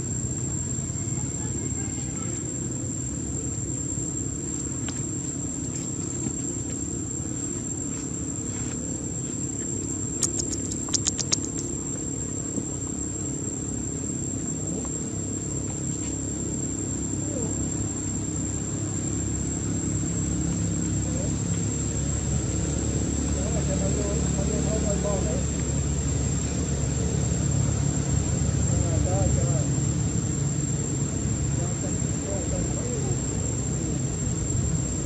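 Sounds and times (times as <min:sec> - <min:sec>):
high-pitched insect drone: 0:00.0 - 0:35.0
sharp clicks: 0:10.2 - 0:11.7.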